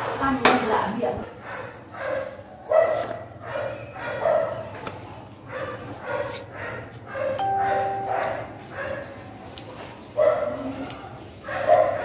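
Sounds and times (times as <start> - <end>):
dog barking: 1.3 - 4.7, 5.5 - 9.3, 10.2 - 12.0.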